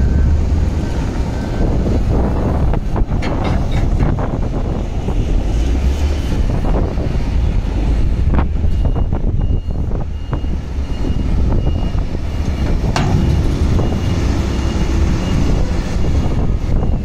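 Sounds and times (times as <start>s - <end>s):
diesel engine running: 0.0s - 17.0s
hydraulics lowering dump body: 0.0s - 17.0s
faint beeps: 8.7s - 17.0s.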